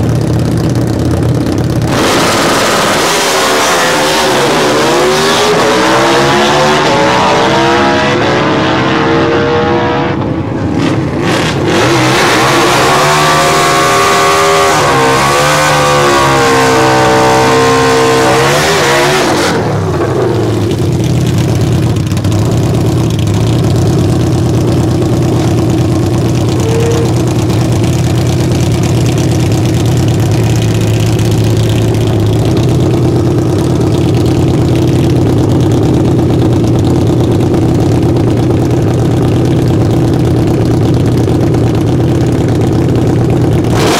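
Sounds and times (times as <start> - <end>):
motorcycle engine idling: 0.0 - 1.9, 20.4 - 43.7
motorcycle engines at full throttle: 0.0 - 43.9.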